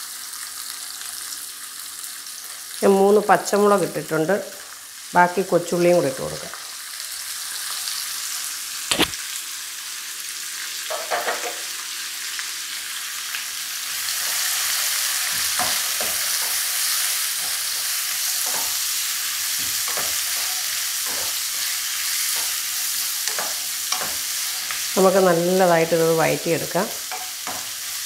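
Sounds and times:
vegetables sizzling in hot oil: 0:00.0 - 0:28.0
sharp knock: 0:08.9 - 0:09.2.

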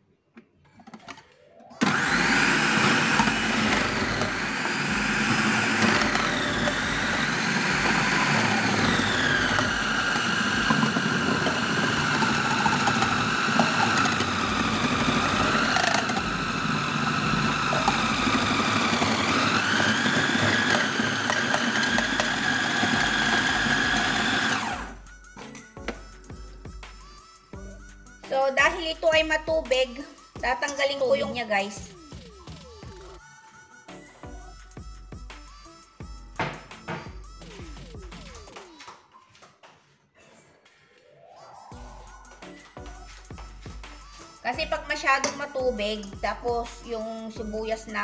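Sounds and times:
food processor motor whine: 0:01.8 - 0:25.0.

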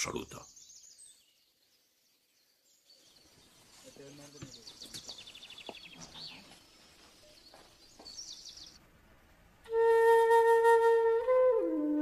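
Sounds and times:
small birds trilling: 0:00.0 - 0:08.8
flute holding a note: 0:09.7 - 0:12.0.

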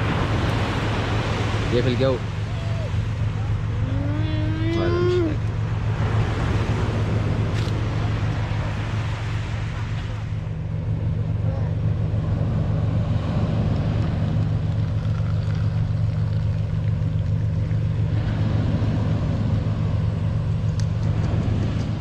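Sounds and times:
engine idling drone: 0:00.0 - 0:22.0
tea pouring into cup: 0:14.8 - 0:17.4.

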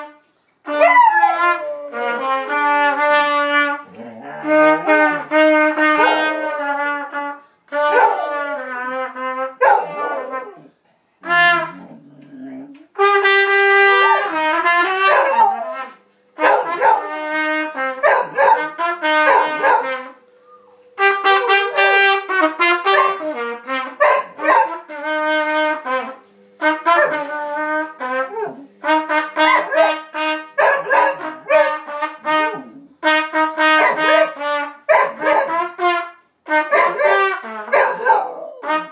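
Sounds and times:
trumpet playing: 0:00.0 - 0:38.9
dog howling: 0:03.9 - 0:05.3, 0:09.7 - 0:10.7, 0:15.1 - 0:16.0, 0:36.9 - 0:38.8.

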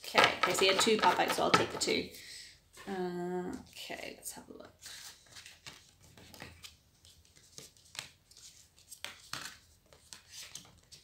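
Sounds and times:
cards rustling: 0:04.8 - 0:11.0.

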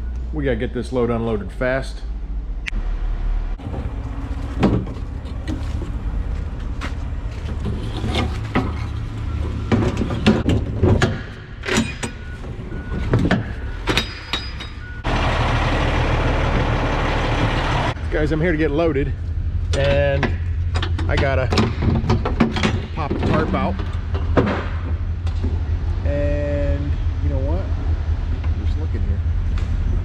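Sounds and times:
diesel truck idling: 0:02.8 - 0:07.8, 0:12.2 - 0:19.7
metal doors and latches clanking: 0:03.6 - 0:15.1, 0:19.7 - 0:25.6.

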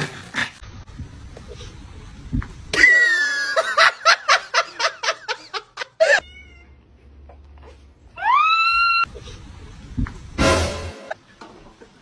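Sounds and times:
cat crying: 0:06.0 - 0:06.8.

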